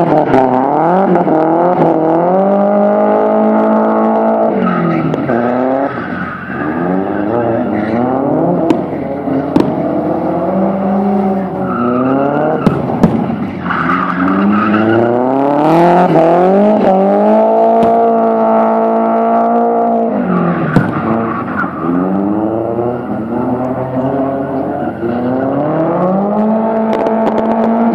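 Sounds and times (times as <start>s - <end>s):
car engine revving: 0.0s - 27.9s
tyres skidding and squealing: 0.0s - 27.9s
sharp cracks: 12.6s - 13.6s.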